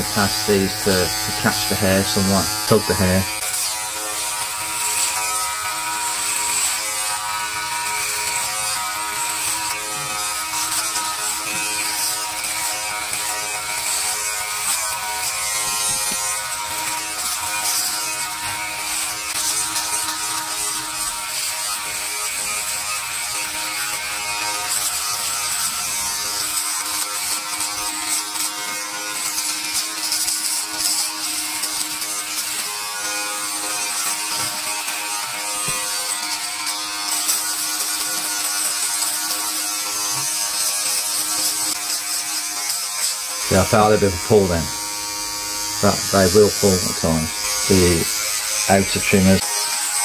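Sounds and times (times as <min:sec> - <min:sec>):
electric groomer buzzing: 0:00.0 - 0:50.0.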